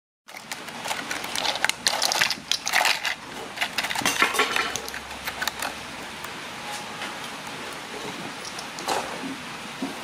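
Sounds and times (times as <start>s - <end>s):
plastic blocks clicking and clattering: 0.3s - 5.8s, 7.5s - 9.3s.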